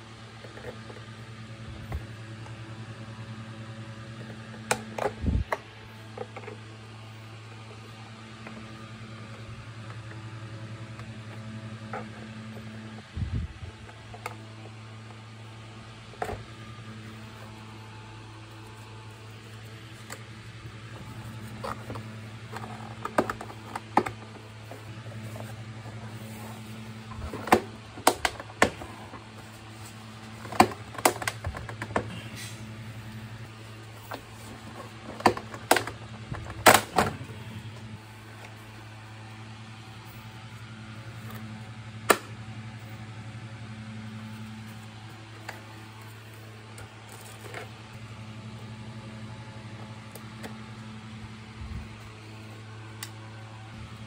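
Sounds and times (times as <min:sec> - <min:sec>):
steady low hum: 0:00.0 - 0:54.0.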